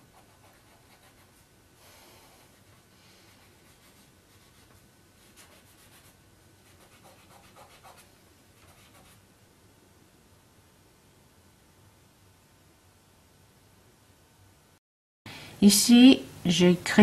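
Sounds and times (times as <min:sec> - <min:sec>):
pencil scratching on paper: 0:00.0 - 0:01.4, 0:02.2 - 0:09.2.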